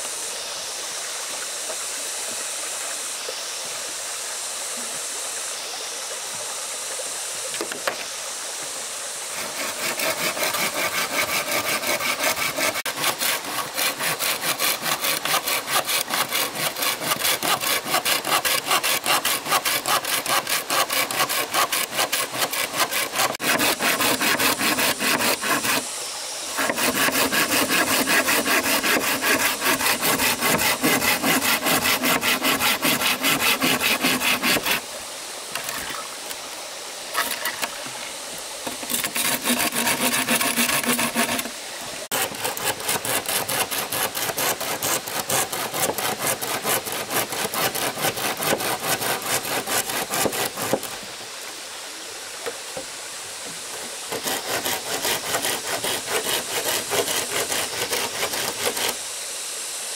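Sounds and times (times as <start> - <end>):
hand saw cutting wood: 9.3 - 34.9, 37.2 - 37.8, 38.6 - 51.0, 53.7 - 59.1.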